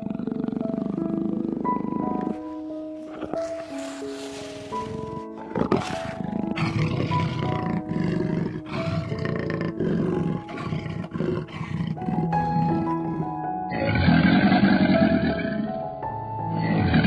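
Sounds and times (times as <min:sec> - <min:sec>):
lion growling: 0:00.0 - 0:02.4, 0:04.6 - 0:15.7
background music with sustained notes: 0:00.0 - 0:17.0.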